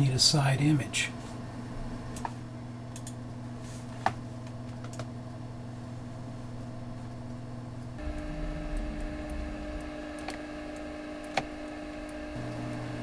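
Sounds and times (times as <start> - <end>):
steady low hum: 0.0 - 13.0
computer mouse clicks: 2.2 - 3.2.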